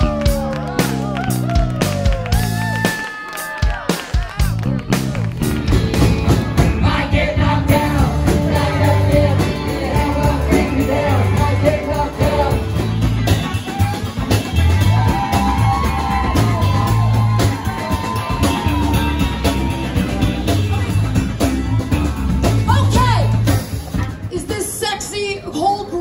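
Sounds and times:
guitars and bass: 0:00.0 - 0:02.9, 0:04.3 - 0:26.0
drum kit beat: 0:00.0 - 0:25.2
women singing: 0:06.7 - 0:12.8.

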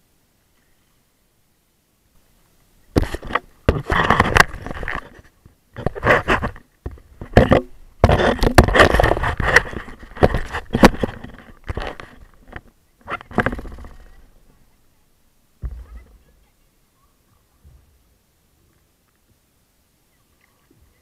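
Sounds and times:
camera handling scraping and knocking: 0:03.0 - 0:14.1.

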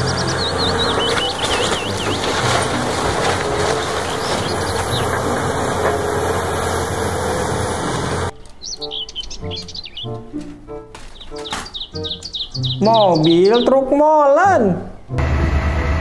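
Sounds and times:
timber splintering: 0:00.0 - 0:08.6, 0:10.4 - 0:12.4
excavator diesel engine under load: 0:00.0 - 0:09.1, 0:15.2 - 0:16.0
debris falling: 0:00.5 - 0:07.4.

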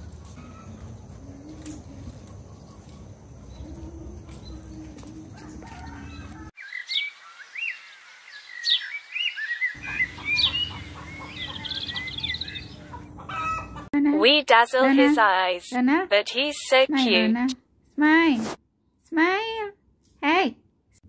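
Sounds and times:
small birds chirping: 0:00.4 - 0:13.8.

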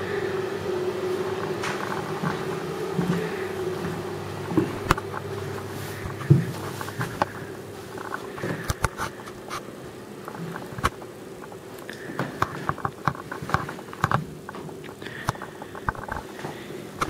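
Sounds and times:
faint hum: 0:00.0 - 0:17.0
footsteps on carpet: 0:01.6 - 0:09.5.

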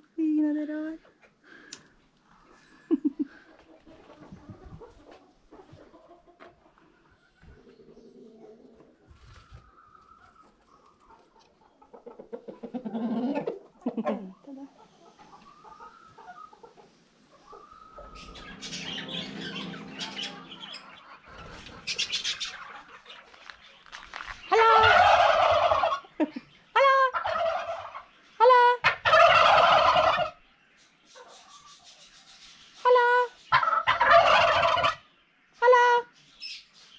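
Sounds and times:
turkeys gobbling: 0:03.2 - 0:30.4, 0:32.8 - 0:36.0
soft bird calls: 0:06.8 - 0:13.6, 0:14.3 - 0:28.5, 0:29.1 - 0:36.9.

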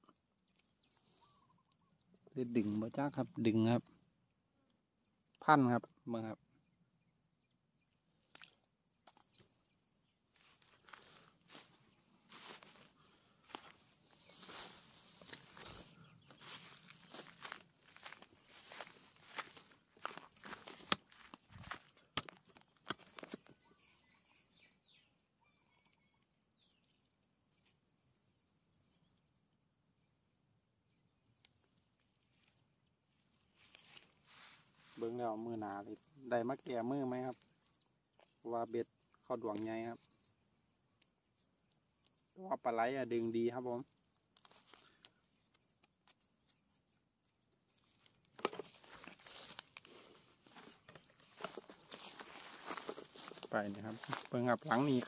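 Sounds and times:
high insect trill: 0:00.0 - 0:55.0
small ticks: 0:08.2 - 0:09.6, 0:31.3 - 0:32.6, 0:39.0 - 0:42.4, 0:43.9 - 0:48.4
footsteps on ground: 0:10.3 - 0:23.6, 0:47.7 - 0:55.0.

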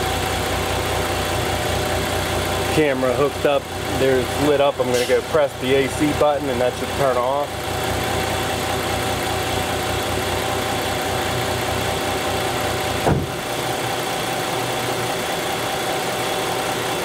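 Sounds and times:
car engine idling: 0:00.0 - 0:17.0
sharp thump: 0:13.0 - 0:13.4.

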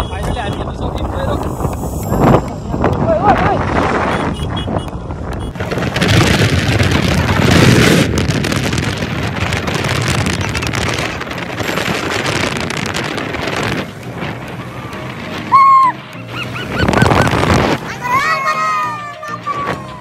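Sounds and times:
wind buffeting microphone: 0:00.0 - 0:15.9, 0:16.6 - 0:18.2
motorcycle running: 0:00.0 - 0:18.1.

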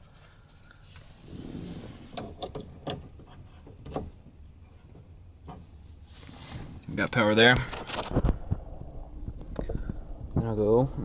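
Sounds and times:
rustling: 0:00.0 - 0:08.6.

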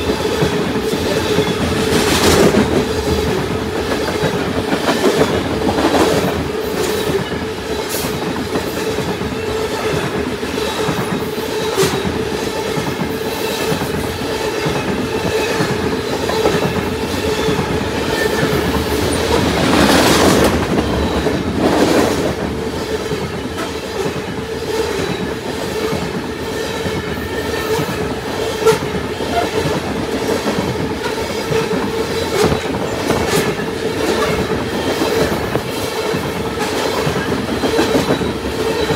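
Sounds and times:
train wheels clickety-clack: 0:00.0 - 0:38.9
wheel squeal: 0:37.0 - 0:38.9.

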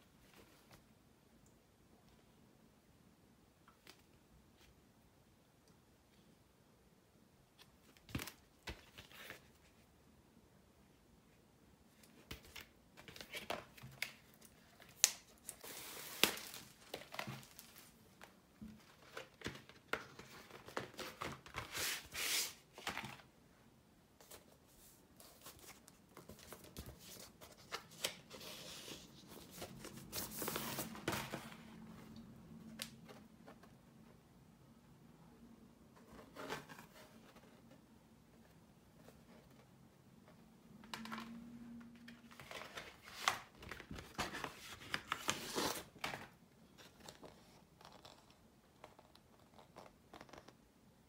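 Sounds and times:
record sleeves rustling: 0:11.9 - 0:23.3, 0:24.2 - 0:33.9, 0:41.9 - 0:47.8.

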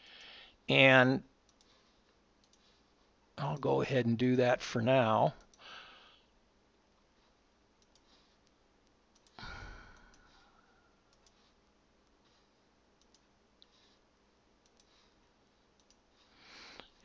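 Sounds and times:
computer mouse clicks: 0:01.5 - 0:01.8, 0:02.4 - 0:02.8, 0:05.4 - 0:05.7, 0:07.8 - 0:10.3, 0:11.1 - 0:12.2, 0:13.0 - 0:13.7, 0:14.6 - 0:15.2, 0:15.8 - 0:16.1
short breath: 0:05.6 - 0:06.3.

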